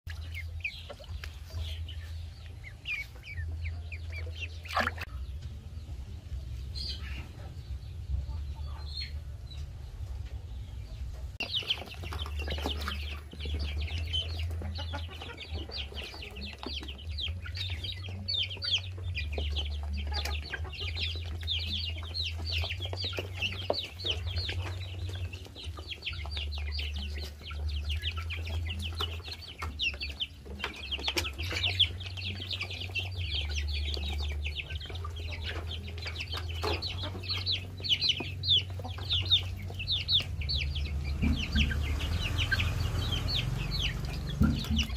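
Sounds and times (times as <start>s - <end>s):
steady low rumble: 0.1s - 15.9s, 31.7s - 44.9s
chicks and ducklings peeping: 0.1s - 44.9s
sharp knocks: 44.3s - 44.9s.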